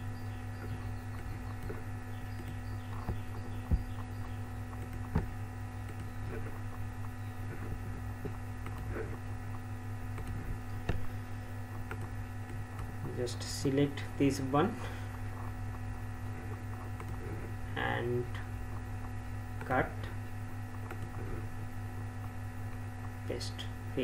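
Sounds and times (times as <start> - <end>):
electrical hum: 0.0 - 24.0
computer mouse clicks: 7.5 - 9.2, 10.1 - 11.0, 11.8 - 13.2, 15.7 - 17.5, 20.8 - 21.4.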